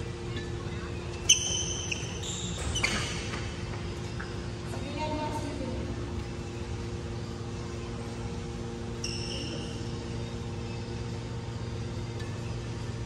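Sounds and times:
fans and air conditioning hum: 0.0s - 13.0s
brief high squeak: 1.3s - 3.4s, 9.0s - 9.9s.

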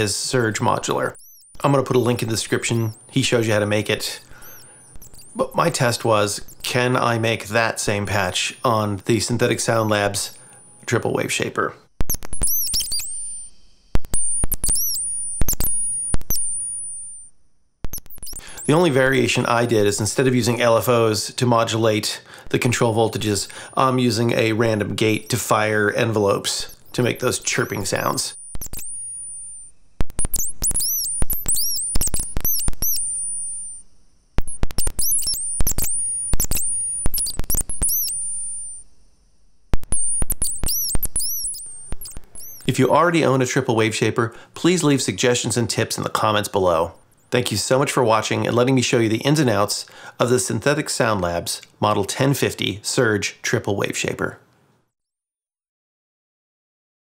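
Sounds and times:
synthesized bird chirps: 0.0s - 10.9s, 12.0s - 17.2s, 17.9s - 20.7s, 23.1s - 33.8s, 34.4s - 38.8s, 39.8s - 43.0s
thin high synth tone: 0.0s - 11.0s, 12.0s - 17.3s, 17.9s - 20.7s, 22.6s - 42.8s.

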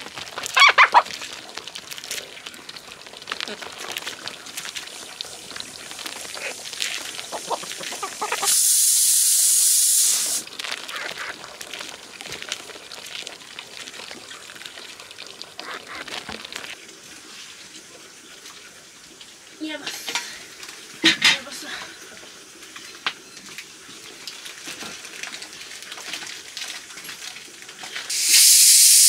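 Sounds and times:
loud steady hiss: 4.8s - 10.5s, 28.1s - 29.0s
clinks of pots and utensils: 21.0s - 21.9s.

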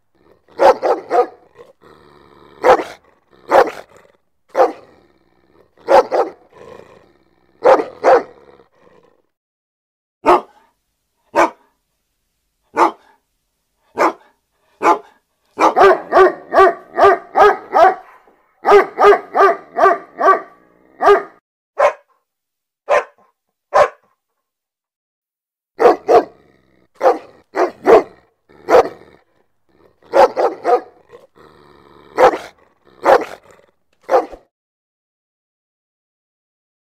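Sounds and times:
dog growling: 0.0s - 9.4s, 25.8s - 34.5s
large dog barking: 0.1s - 9.2s, 10.2s - 10.7s, 11.3s - 11.7s, 12.7s - 13.2s, 13.9s - 22.2s, 22.9s - 24.1s, 25.8s - 34.5s.

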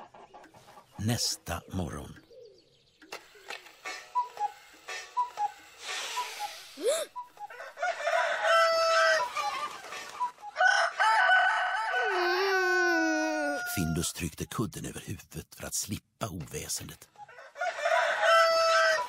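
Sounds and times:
rooster crowing and clucking: 7.4s - 12.3s, 13.3s - 14.0s, 17.2s - 19.0s.

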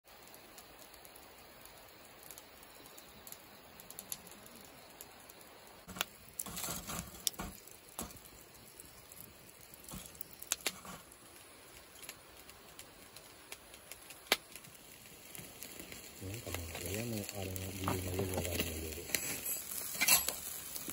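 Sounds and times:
outdoor hush: 0.1s - 20.9s
tongs shifting charcoal: 5.9s - 20.9s.

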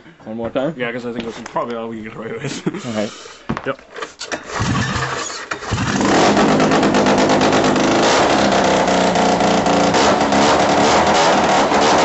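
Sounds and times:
rotary snowmobile engine running: 4.5s - 12.0s.

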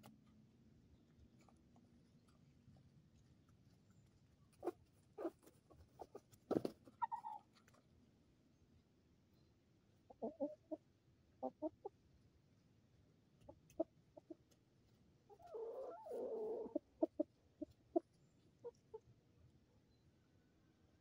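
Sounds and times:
chickens clucking: 4.5s - 7.8s, 10.0s - 12.0s, 13.4s - 14.6s, 15.3s - 19.1s.

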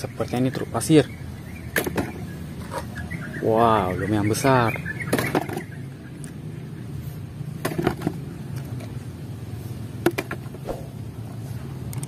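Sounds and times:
steady low hum: 8.3s - 12.0s.

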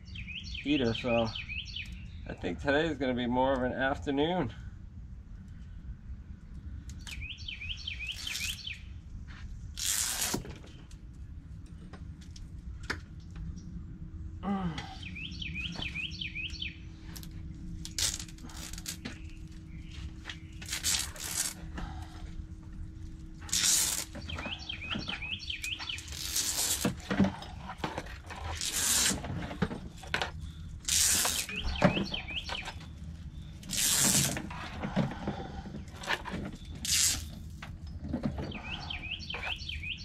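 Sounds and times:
electrical wire rustling and scraping: 8.0s - 13.5s, 17.0s - 39.9s
songbird warbling: 30.9s - 33.5s.

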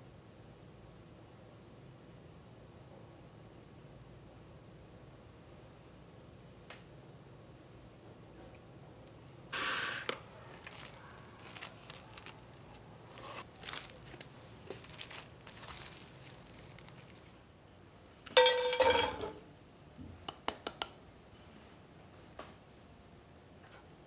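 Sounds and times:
cling wrap crinkling: 10.1s - 17.5s
frying pan metallic clatter: 18.4s - 19.4s.

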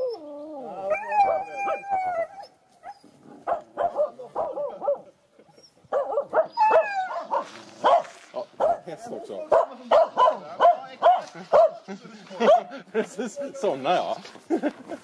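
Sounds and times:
dog yipping: 5.9s - 8.8s
dog whining: 6.4s - 7.4s.

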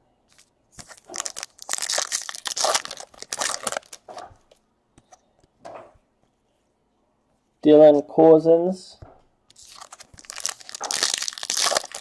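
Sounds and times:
trading cards shuffling: 0.3s - 5.2s, 9.5s - 12.0s.

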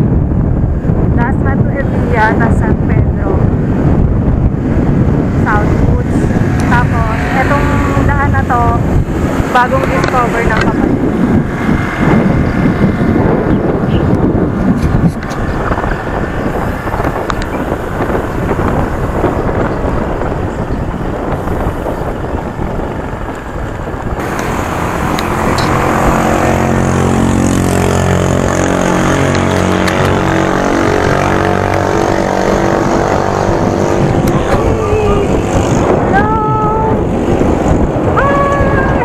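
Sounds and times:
bicycle road rumble: 0.0s - 39.0s
wind over microphone: 0.0s - 39.0s.

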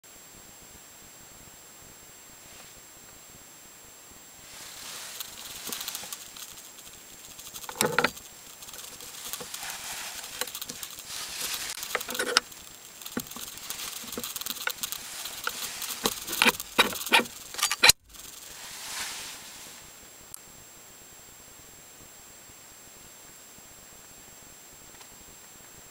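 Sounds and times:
metal clicks and knocks: 7.5s - 8.2s, 11.8s - 18.0s.

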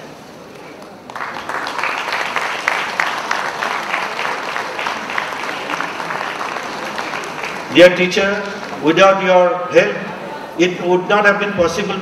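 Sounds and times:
audience applause: 0.8s - 8.8s.

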